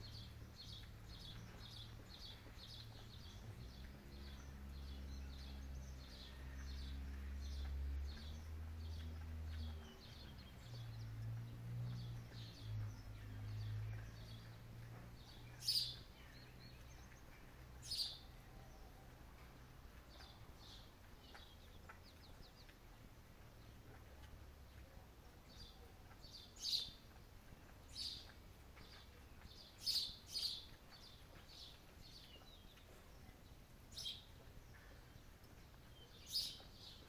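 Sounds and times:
small bird chirping: 0.0 - 19.2, 23.6 - 37.0.

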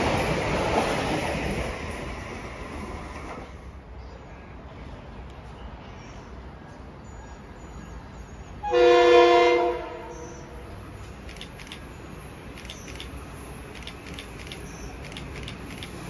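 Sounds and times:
train horn: 8.6 - 10.5.

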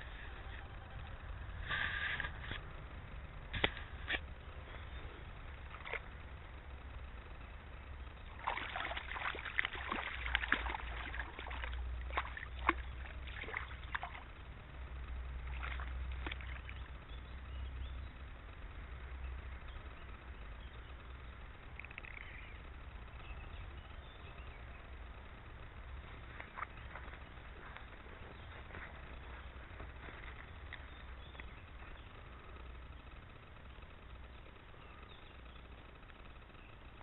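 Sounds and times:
low steady rumble: 0.0 - 37.0
fish splashing at water surface: 8.3 - 14.3, 15.4 - 16.8.

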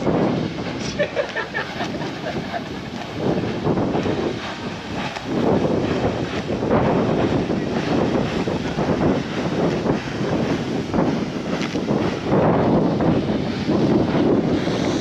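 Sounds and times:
burner flame rushing: 0.0 - 15.0
wind buffeting microphone: 0.0 - 15.0.

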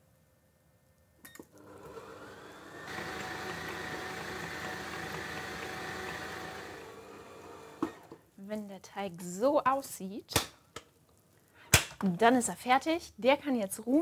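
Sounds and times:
stand mixer motor whining: 1.5 - 8.2.

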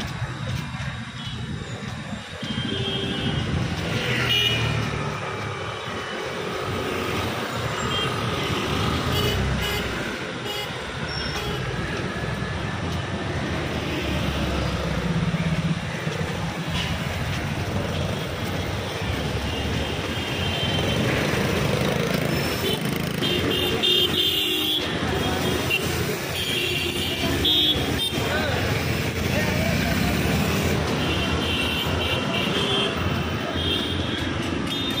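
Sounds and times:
vehicle engines passing: 0.0 - 35.0.

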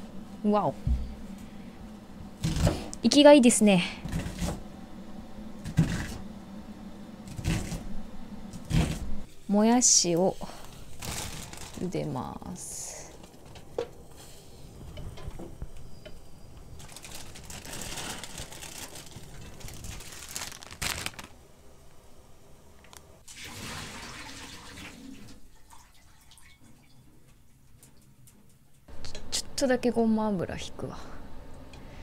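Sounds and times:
hot water pouring into sink: 23.2 - 26.6.

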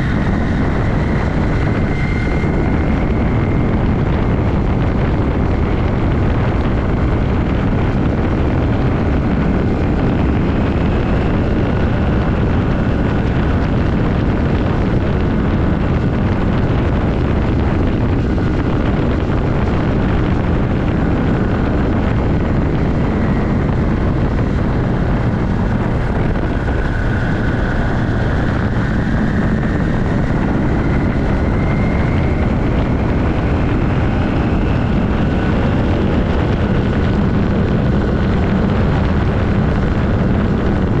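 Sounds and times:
motorcycle engine droning: 0.0 - 41.0.

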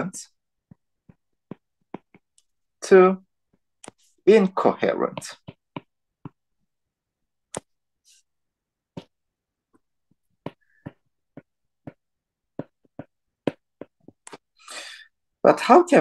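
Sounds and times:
stylus clicking on tablet screen: 7.4 - 7.8.

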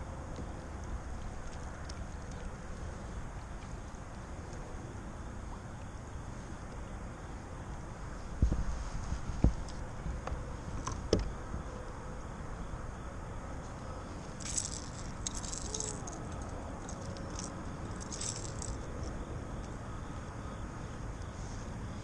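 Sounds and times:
fishing lure rattling: 14.3 - 19.1
hooks jangling: 14.4 - 19.1.

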